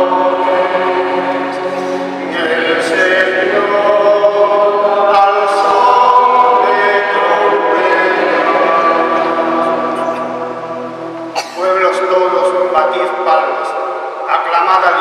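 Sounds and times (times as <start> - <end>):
man singing chant into microphone: 0.0 - 10.3.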